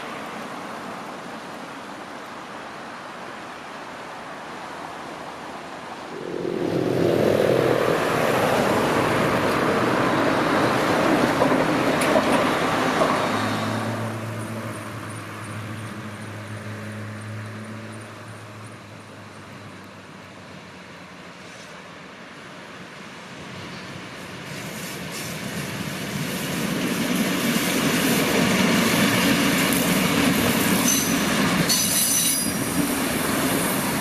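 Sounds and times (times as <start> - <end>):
river water rushing: 0.0 - 15.8
road vehicles passing: 0.0 - 31.7.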